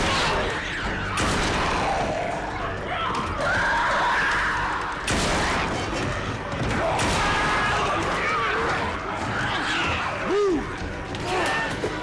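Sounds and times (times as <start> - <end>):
crowd shrieking: 1.5 - 5.1.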